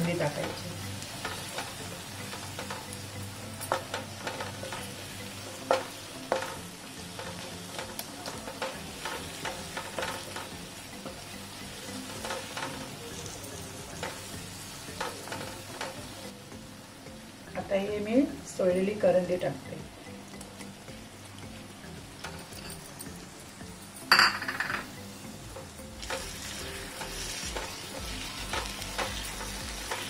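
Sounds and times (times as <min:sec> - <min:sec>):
masala sizzling in frying pan: 0:00.0 - 0:30.0
spatula scraping and tapping pan: 0:00.2 - 0:16.2, 0:25.5 - 0:30.0.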